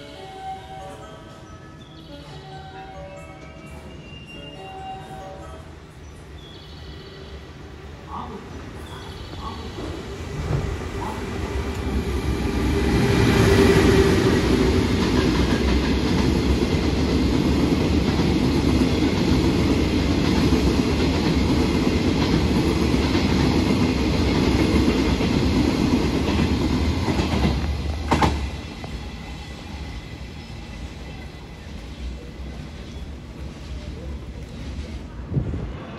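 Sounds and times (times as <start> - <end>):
train rumble: 7.2 - 35.9
freight train wheels clacking: 9.0 - 30.3.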